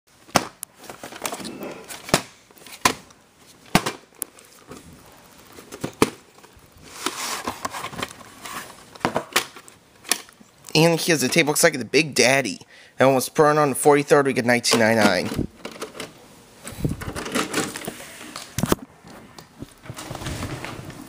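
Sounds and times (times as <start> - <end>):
rustling: 3.4 - 9.0.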